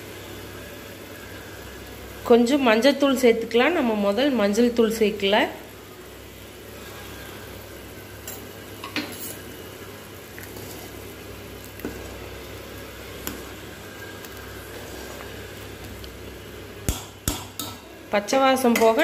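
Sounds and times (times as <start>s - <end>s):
gravy bubbling in pan: 3.8s - 19.0s.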